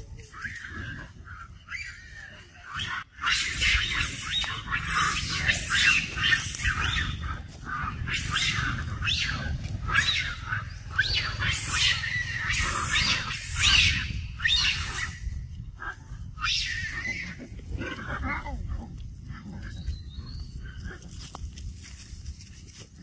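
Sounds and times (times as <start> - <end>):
macaques squealing: 0.1 - 15.4, 16.4 - 18.7
steady low rumble: 2.3 - 23.0.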